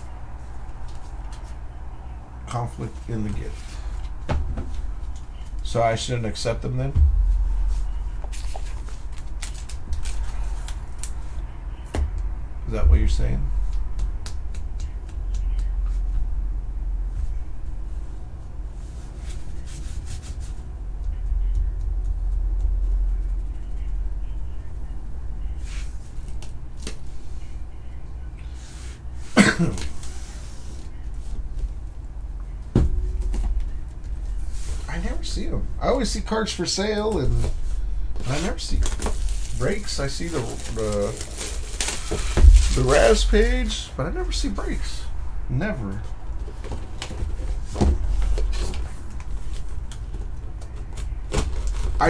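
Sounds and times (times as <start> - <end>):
steady low hum: 0.0 - 52.0
person coughing: 29.4 - 29.9.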